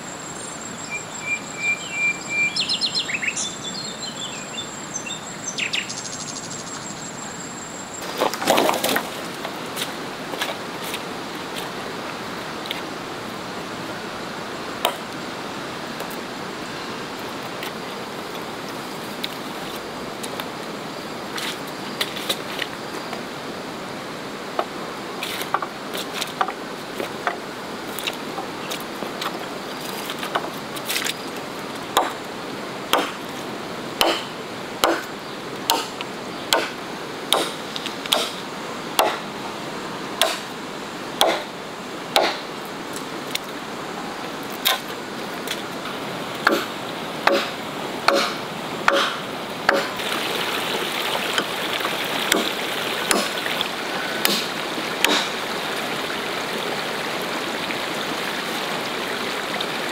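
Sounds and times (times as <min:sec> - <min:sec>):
steady rushing hiss: 0:04.8 - 0:59.9
machete chopping wood: 0:32.0 - 0:32.2, 0:32.9 - 0:33.2, 0:34.0 - 0:35.1, 0:35.7 - 0:38.4, 0:39.0 - 0:39.2, 0:40.2 - 0:40.5, 0:41.2 - 0:41.5, 0:42.2 - 0:42.4, 0:46.4 - 0:50.0, 0:52.3 - 0:52.5, 0:53.1 - 0:53.4, 0:54.2 - 0:55.4.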